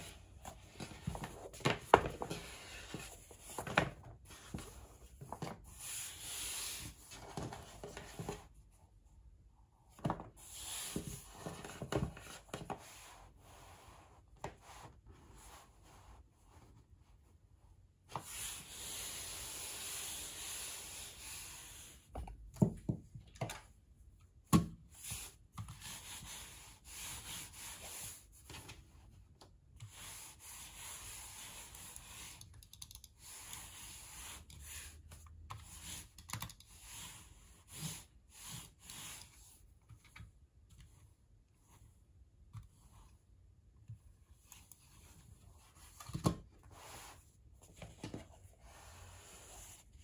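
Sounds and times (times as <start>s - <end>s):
mouse sliding over cloth: 12.5s - 22.1s, 46.6s - 50.0s.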